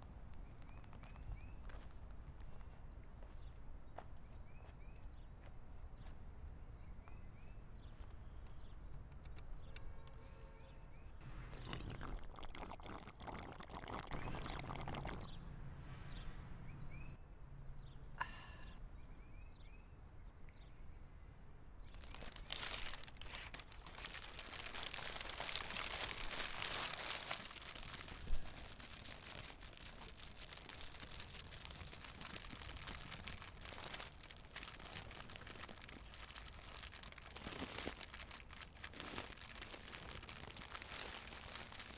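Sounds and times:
paper wrapper crinkling: 21.9s - 41.9s.

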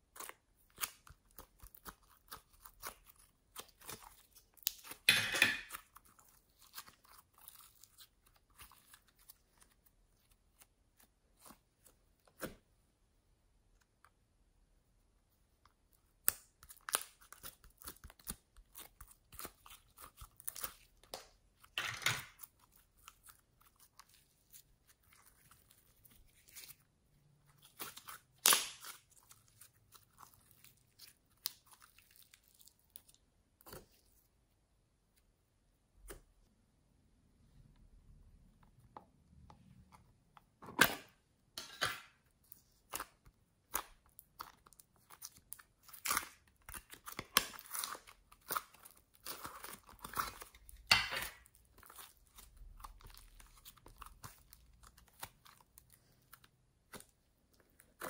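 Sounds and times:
slime sticky crackles: 42.6s - 58.0s.

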